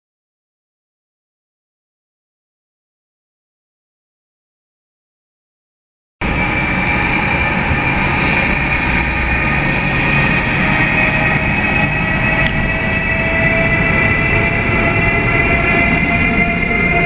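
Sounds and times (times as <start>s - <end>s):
electric locomotive whine: 6.2s - 17.0s
train rumble: 6.2s - 17.0s.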